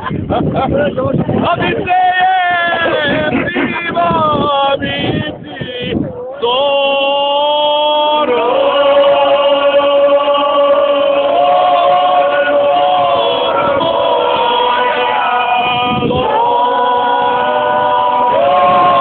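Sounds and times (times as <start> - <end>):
people talking: 0.0 - 19.0
group singing unaccompanied: 6.4 - 19.0.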